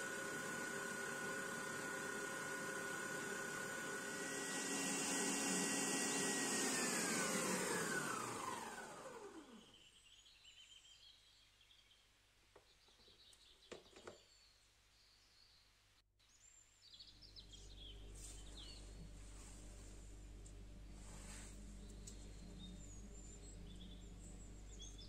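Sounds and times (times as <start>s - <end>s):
stand mixer motor whining: 0.0s - 9.6s.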